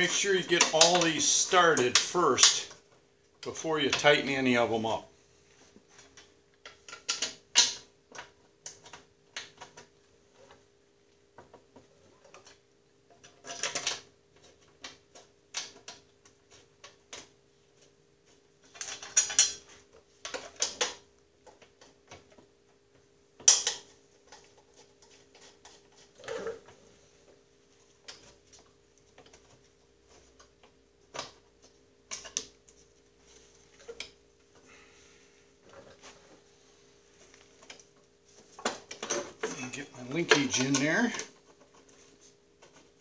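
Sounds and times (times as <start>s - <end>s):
faint steady hum: 0.0s - 43.0s
metal parts rattling: 18.7s - 19.6s.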